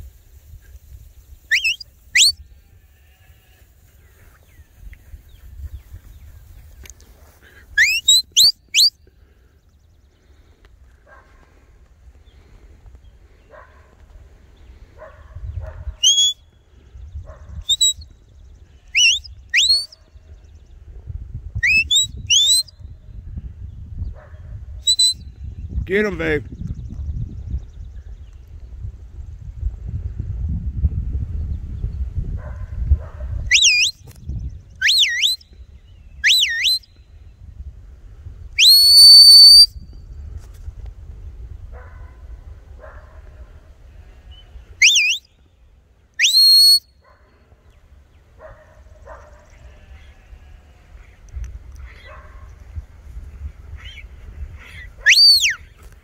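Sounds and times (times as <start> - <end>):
wind rumble on microphone: 0.0 - 7.8, 10.8 - 38.6, 39.6 - 44.8, 47.8 - 56.0
loud whistles rising in pitch: 1.5 - 2.4, 7.8 - 8.9, 16.0 - 16.4, 17.7 - 18.0, 19.0 - 19.9, 21.6 - 22.7, 24.9 - 25.2, 33.5 - 34.0, 34.8 - 35.4, 36.2 - 36.9, 38.6 - 39.8, 44.8 - 45.3, 46.2 - 46.9, 55.0 - 55.6.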